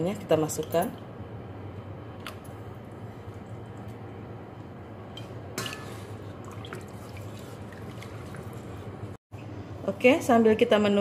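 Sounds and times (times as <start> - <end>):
broth sloshing in a pot: 2.2 - 9.2.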